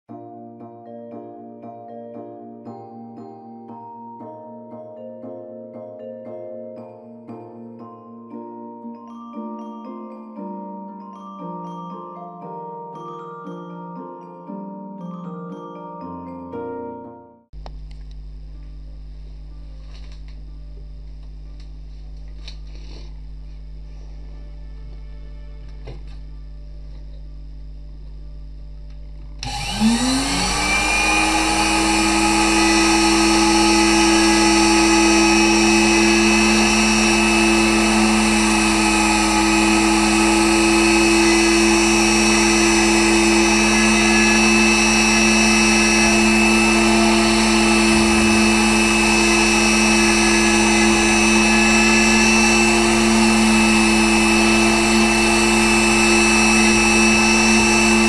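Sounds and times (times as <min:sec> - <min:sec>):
cutter engraving into wood: 0:29.4 - 0:58.0
engraving spindle motor whine: 0:29.4 - 0:58.0.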